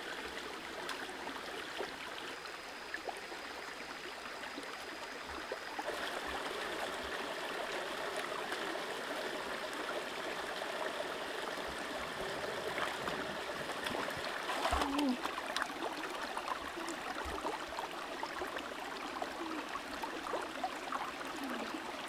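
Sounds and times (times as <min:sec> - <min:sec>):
stream running over stones: 0:00.0 - 0:22.0
hands splashing in water: 0:13.8 - 0:15.7.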